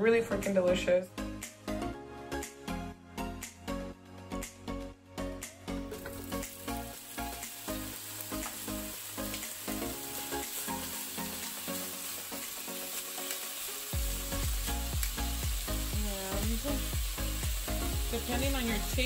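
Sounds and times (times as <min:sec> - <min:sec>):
background music with a beat: 0:01.2 - 0:19.0
meat sizzling in a frying pan: 0:05.9 - 0:19.0.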